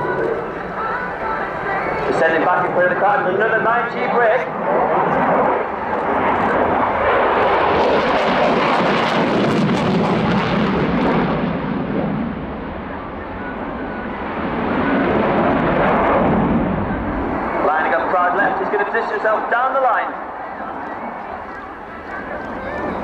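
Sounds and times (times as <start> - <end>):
fighter jet engine rush: 0.0 - 23.0.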